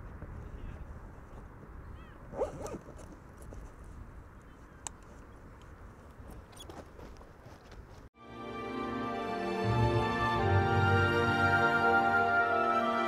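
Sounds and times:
wind rumbling on microphone: 0.0s - 8.1s.

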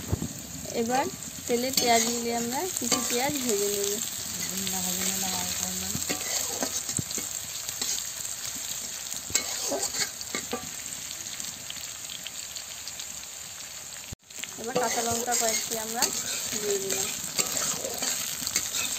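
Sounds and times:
onions sizzling in hot oil: 0.0s - 18.9s
spatula scraping a pan: 1.7s - 8.1s, 9.3s - 10.8s, 14.7s - 18.9s.

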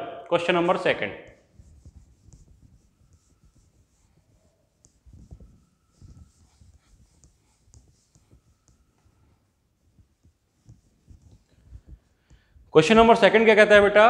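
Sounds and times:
duster rubbing on whiteboard: 1.3s - 12.5s.

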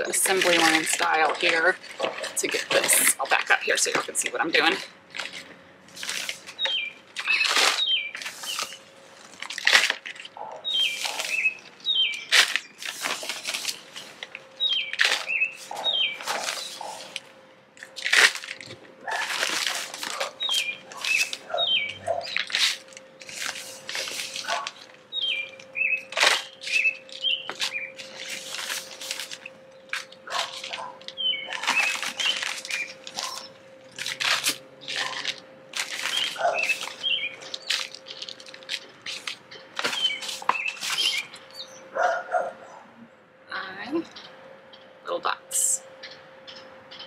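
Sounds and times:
soil rustling and scraping: 0.0s - 41.4s
songbird singing: 6.5s - 8.8s, 10.4s - 12.8s, 14.0s - 17.2s, 20.1s - 23.3s, 24.0s - 34.2s, 35.9s - 47.0s.

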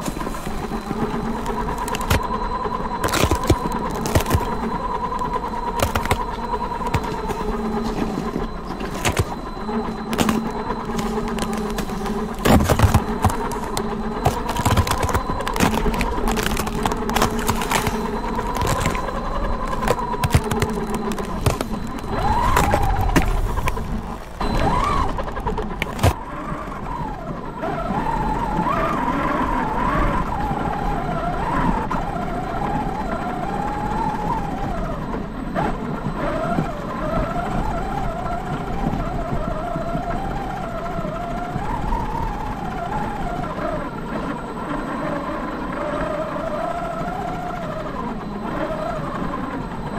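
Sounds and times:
tyres clattering over ice: 0.0s - 2.3s, 3.0s - 24.9s, 25.7s - 26.2s
tyres crunching in snow: 0.0s - 26.2s.

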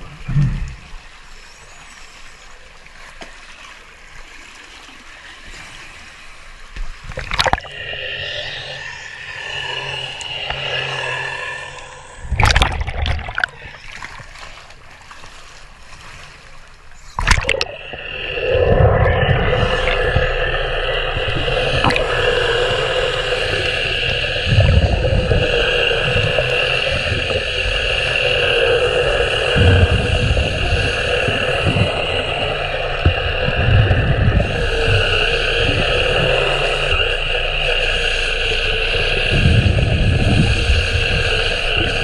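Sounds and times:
water sloshing and gurgling: 0.0s - 42.0s
sharp knocks or splashes: 17.2s - 17.7s
underwater brush tool whirring: 18.6s - 42.0s.

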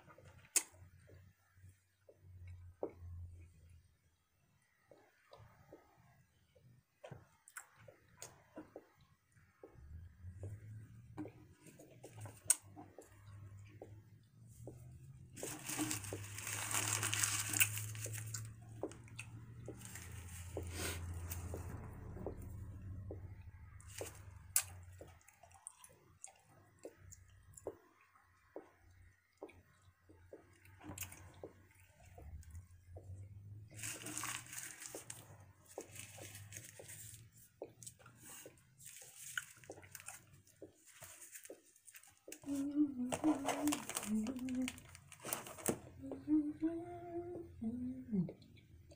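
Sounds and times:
person chewing gum: 7.3s - 48.9s
gum wrapper crinkling: 15.4s - 18.5s, 43.3s - 45.9s.

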